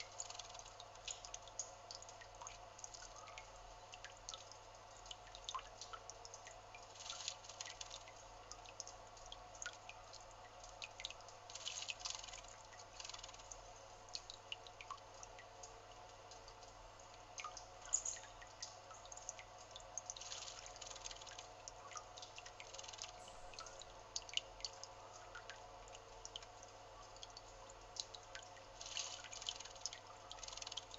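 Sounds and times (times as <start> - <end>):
small water splashes and drips: 0.0 - 30.9.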